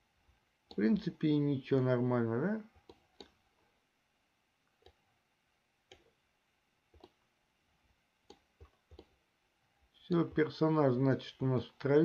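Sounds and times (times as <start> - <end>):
computer mouse clicks: 2.8 - 3.4, 4.8 - 5.0, 5.9 - 6.2, 6.9 - 7.2, 8.2 - 9.2.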